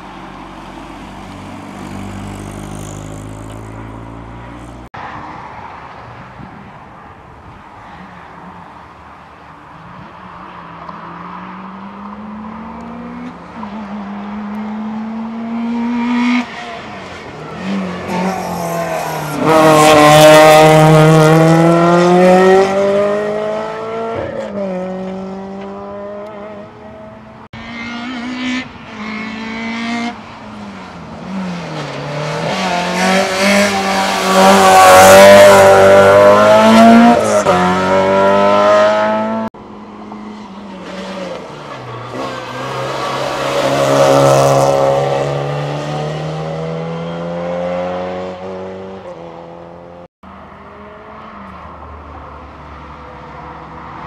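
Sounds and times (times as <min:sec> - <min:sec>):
race car engines revving: 0:07.9 - 0:54.0.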